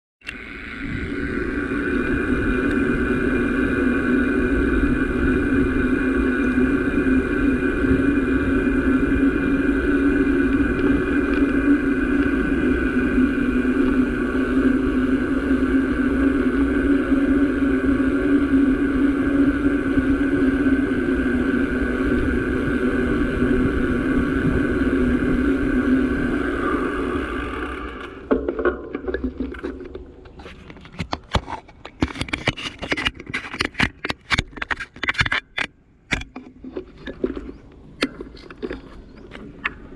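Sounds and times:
small engine running steadily: 0.2s - 30.1s.

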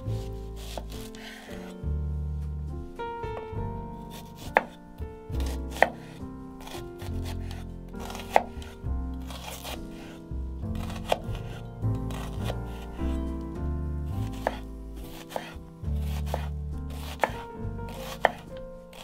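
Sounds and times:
background music with bass line: 0.0s - 19.0s
knife chopping on cutting board: 0.6s - 1.7s, 4.1s - 4.8s, 5.4s - 13.2s, 14.2s - 19.0s.

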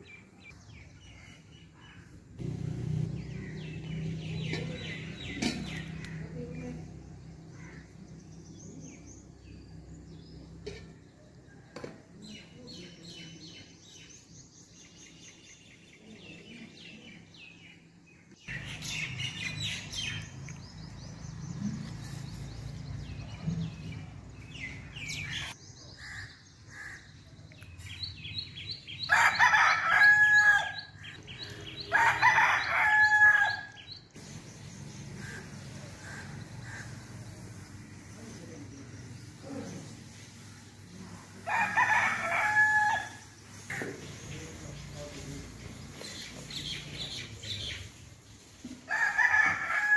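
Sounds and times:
small birds chirping: 12.2s - 29.7s, 33.5s - 41.4s, 42.9s - 48.6s
rooster crowing: 29.1s - 30.9s, 31.9s - 33.8s, 41.5s - 43.3s, 48.9s - 49.9s.

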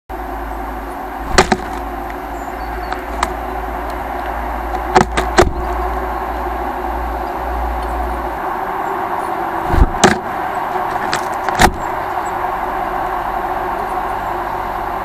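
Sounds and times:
steady low rumble: 0.1s - 15.0s
bird feet and beak clicking on plastic: 2.8s - 5.6s, 9.8s - 11.8s.

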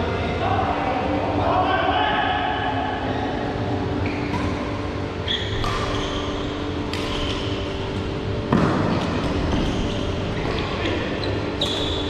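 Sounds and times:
steady low hum: 0.0s - 12.0s
shoes squeaking on court: 4.0s - 8.0s, 9.0s - 12.0s
racket striking shuttlecock: 5.5s - 7.6s.

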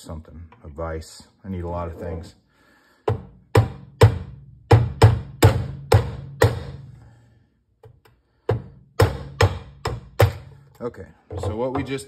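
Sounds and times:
hammer striking metal punch: 3.1s - 7.0s, 8.4s - 10.6s.

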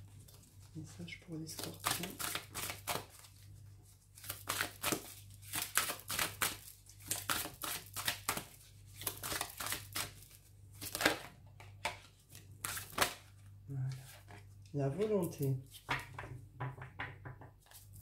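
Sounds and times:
cards being shuffled: 1.5s - 16.2s.

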